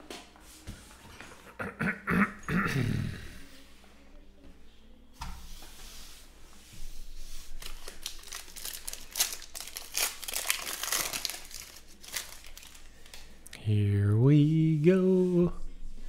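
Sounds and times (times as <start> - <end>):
wrapper tearing and crinkling: 7.6 - 13.2.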